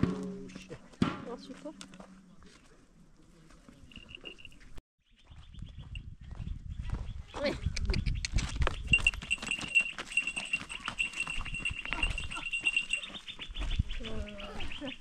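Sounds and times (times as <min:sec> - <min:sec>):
farm animals calling: 0:08.8 - 0:15.0.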